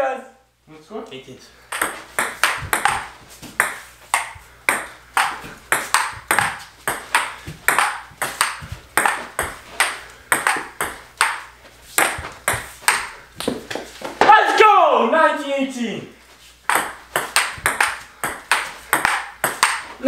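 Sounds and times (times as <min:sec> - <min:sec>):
table tennis ball clicking: 0:01.7 - 0:09.2, 0:09.8 - 0:13.5, 0:16.7 - 0:19.9.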